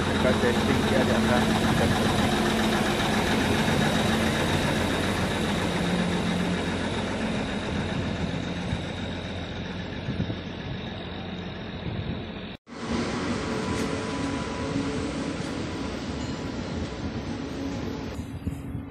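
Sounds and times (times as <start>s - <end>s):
diesel engine running: 0.0s - 18.8s
thin high whine: 4.3s - 18.9s.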